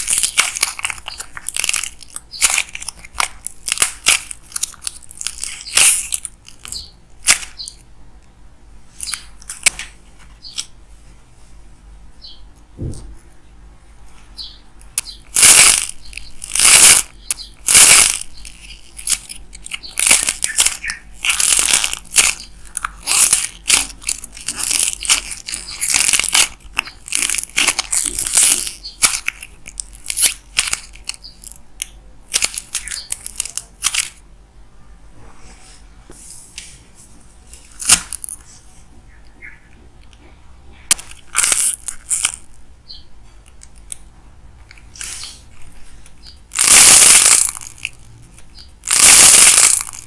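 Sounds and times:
clay cracking: 0.0s - 7.8s, 14.8s - 34.2s, 37.6s - 38.5s, 40.9s - 42.6s, 43.4s - 50.0s
clay crackling and crumbling: 0.0s - 7.8s, 14.8s - 34.2s, 37.5s - 38.5s, 40.9s - 42.6s, 44.6s - 50.0s.

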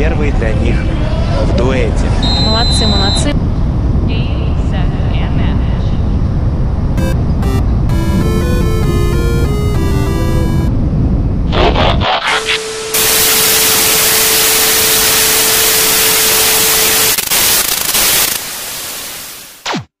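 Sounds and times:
steady tone: 6.8s - 19.4s
glitchy static crackling: 7.0s - 10.7s, 11.5s - 19.9s
loud static hiss: 11.4s - 19.9s
falling whine of screen switching off: 12.2s - 19.6s.

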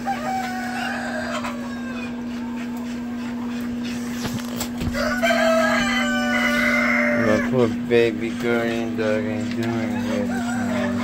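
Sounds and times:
rooster crowing: 0.0s - 2.3s, 4.8s - 7.6s, 9.9s - 11.0s
chickens clucking: 0.0s - 11.0s
steady low hum: 0.0s - 11.0s.

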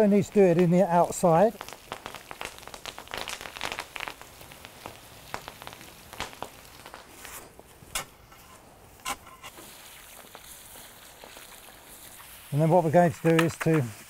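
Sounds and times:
quicklime crackling: 0.0s - 14.0s
water spattering onto quicklime: 9.5s - 14.0s.

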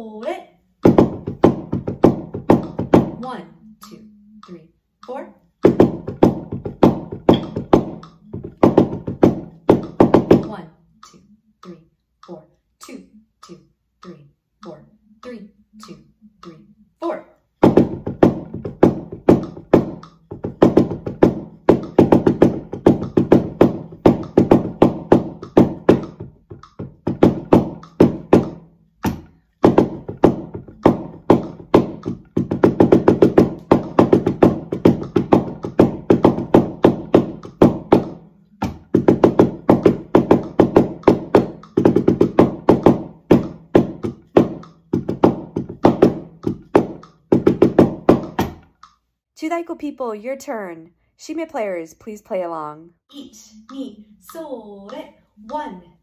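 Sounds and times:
drum struck with wooden sticks: 0.8s - 3.4s, 5.6s - 10.7s, 17.6s - 49.0s.

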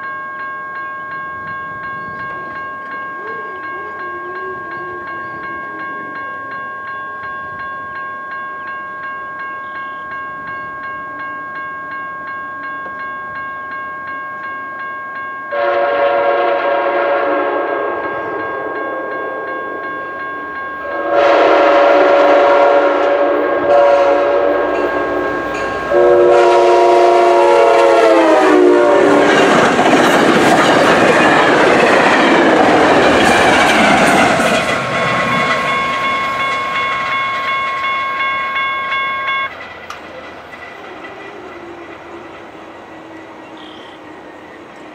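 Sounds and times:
crossing warning bell ringing: 0.0s - 44.9s
train air horn blasts: 15.5s - 19.5s, 20.8s - 25.2s, 25.8s - 29.3s, 43.0s - 44.1s
train rumbling past: 15.5s - 44.9s.

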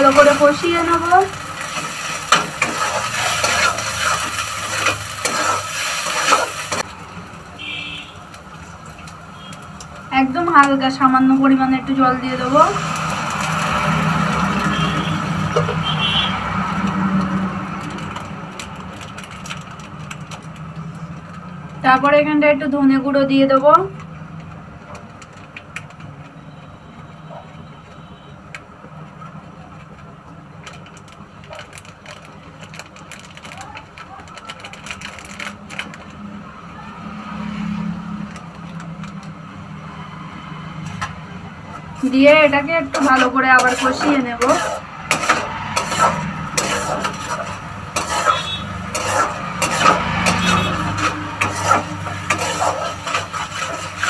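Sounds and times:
paste sizzling: 0.0s - 7.0s, 41.9s - 54.0s
food frying in oil: 0.0s - 22.2s, 41.7s - 54.0s
spatula scraping a pan: 1.6s - 6.9s, 42.0s - 54.0s
faint crackles: 29.7s - 36.2s.

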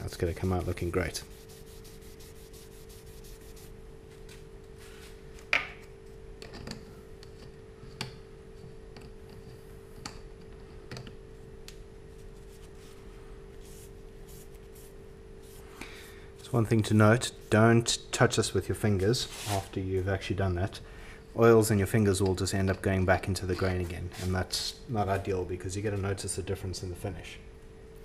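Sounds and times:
paper towel rubbing wood: 0.0s - 3.8s.

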